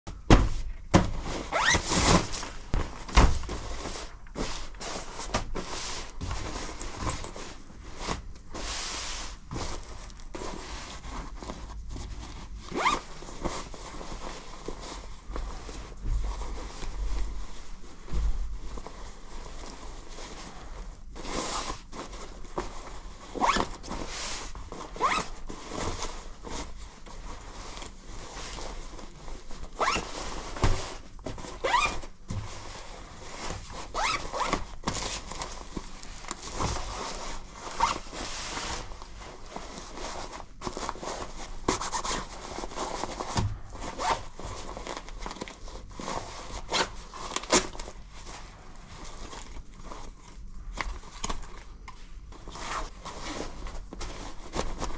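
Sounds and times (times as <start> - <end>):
fabric rustling: 0.1 - 54.9
jacket zippers zipping: 1.4 - 2.2, 31.6 - 32.0, 33.9 - 34.6.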